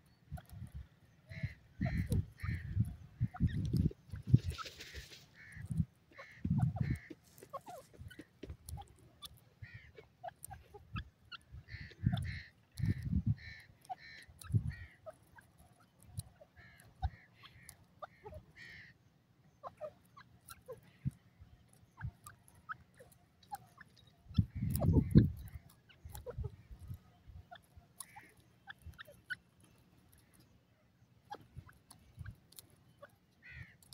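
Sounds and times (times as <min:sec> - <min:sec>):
francolin calls: 0:00.0 - 0:30.5, 0:31.1 - 0:33.9
faint ticks: 0:00.4 - 0:18.2.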